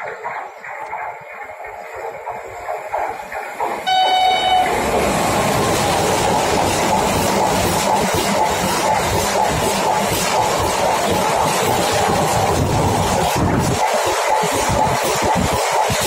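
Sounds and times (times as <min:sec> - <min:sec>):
train wheel and rail noise: 0:00.0 - 0:16.0
train horn blast: 0:03.8 - 0:05.0.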